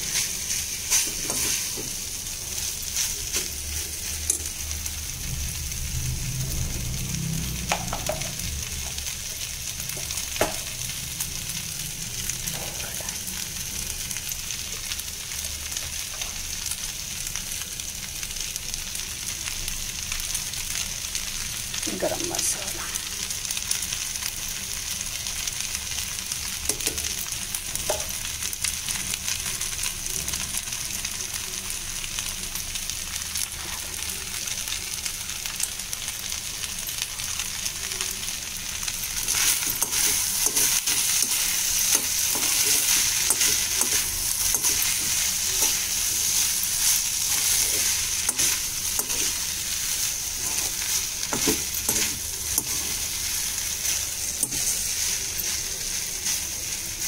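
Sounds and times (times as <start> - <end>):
rice sizzling: 0.0 - 57.0
metal spoon scraping a pan: 39.2 - 49.5, 50.1 - 56.5.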